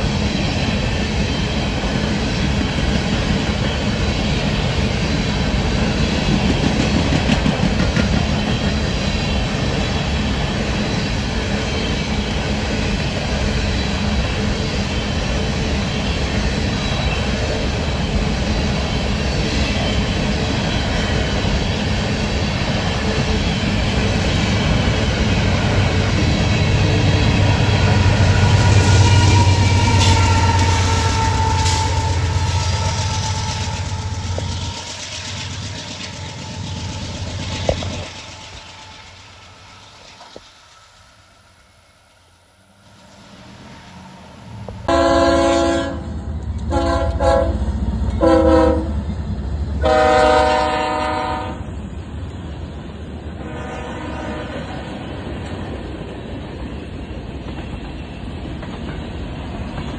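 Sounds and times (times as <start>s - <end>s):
locomotive air horn blasts: 28.1s - 34.4s, 44.9s - 49.0s, 49.8s - 51.6s, 53.4s - 54.7s.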